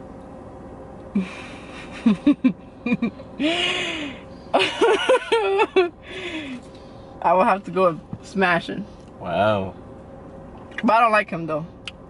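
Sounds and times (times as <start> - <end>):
woman laughing: 1.2 - 6.5.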